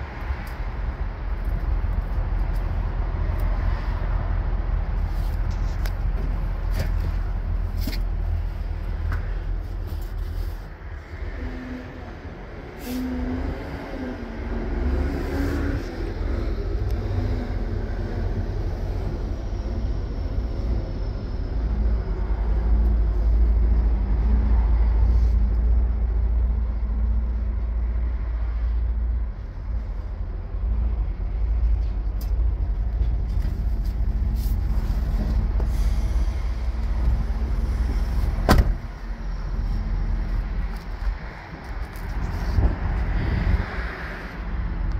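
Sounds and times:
truck cab low rumble: 0.0s - 15.0s, 15.6s - 43.7s.

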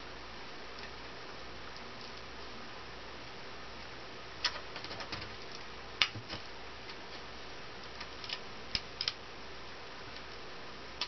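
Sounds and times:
wire clicks and taps: 7.8s - 9.2s.

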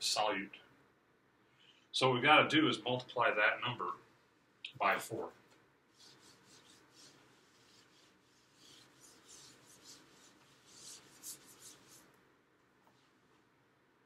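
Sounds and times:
eraser wiping whiteboard: 5.9s - 12.2s.

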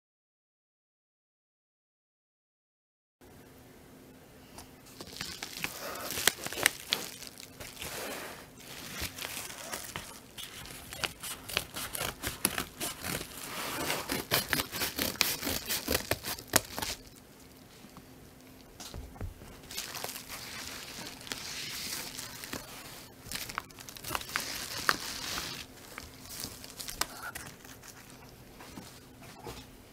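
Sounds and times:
padded envelope crinkling: 4.8s - 17.7s, 18.5s - 29.0s.

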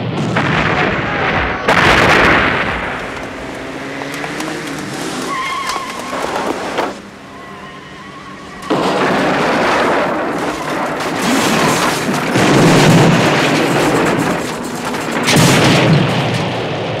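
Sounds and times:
explosion blast: 0.0s - 3.8s, 8.6s - 17.0s
fiery roar: 0.0s - 17.0s.

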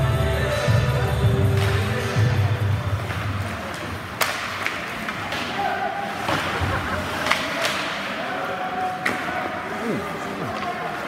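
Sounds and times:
crowd chatter: 0.0s - 11.0s
hockey sticks and puck clacking: 1.2s - 11.0s.

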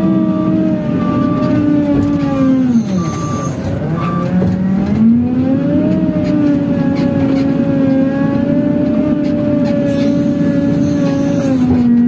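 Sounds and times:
diesel engine revving: 0.0s - 12.0s
short beeps: 2.7s - 4.2s.

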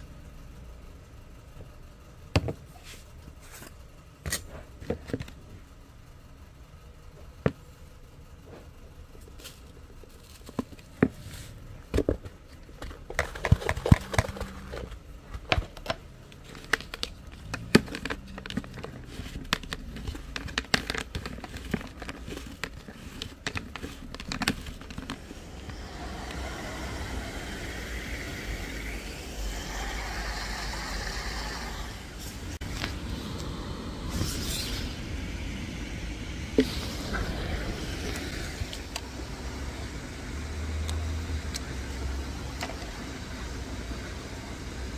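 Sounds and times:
outdoor background noise: 0.0s - 44.9s
plastic bowl and bottle handled: 9.4s - 25.4s
hand mixing dough: 16.4s - 32.8s.

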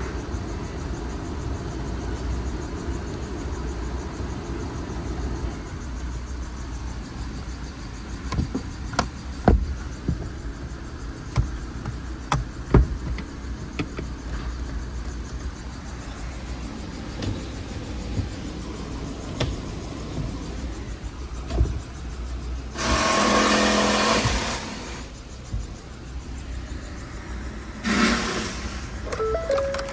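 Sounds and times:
car engine idling: 0.0s - 27.9s, 28.8s - 29.9s
interior control clicks: 8.2s - 15.2s, 29.1s - 29.9s.

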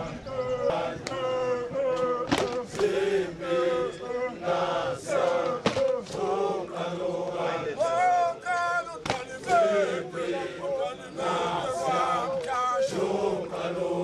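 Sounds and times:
men chanting: 0.0s - 14.0s
sharp knocks or claps: 2.0s - 3.0s, 5.4s - 6.0s, 9.0s - 9.6s.

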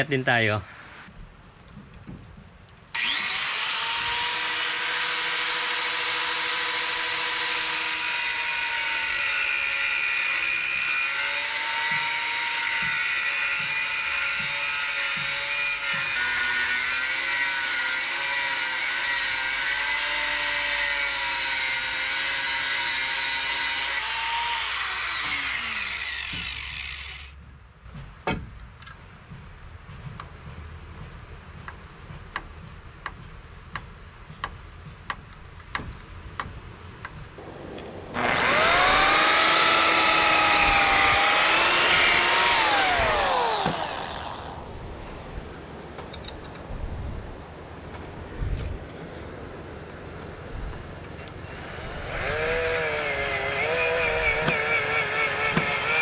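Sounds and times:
angle grinder cutting steel: 3.0s - 27.4s, 38.2s - 44.6s, 51.5s - 56.0s
sharp knocks: 27.9s - 28.6s.

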